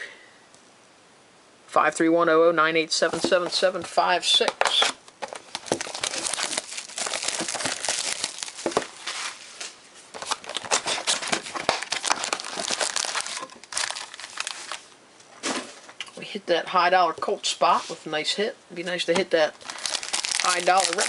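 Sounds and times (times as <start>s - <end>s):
plastic and foil crinkling: 4.6s - 14.9s, 19.5s - 21.0s.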